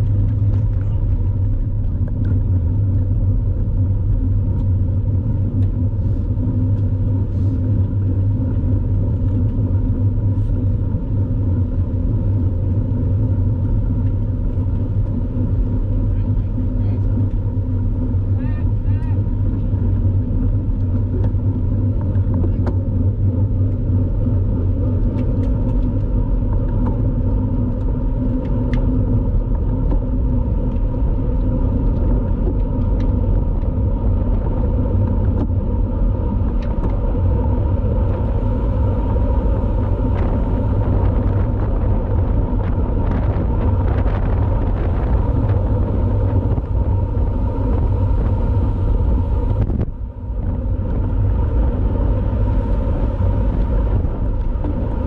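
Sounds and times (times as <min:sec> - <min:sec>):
wind rumbling on microphone: 0:00.0 - 0:55.0.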